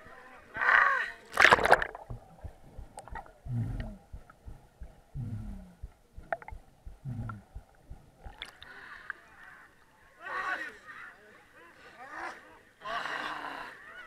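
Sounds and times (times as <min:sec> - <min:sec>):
low falling underwater tones: 0:01.3 - 0:08.8.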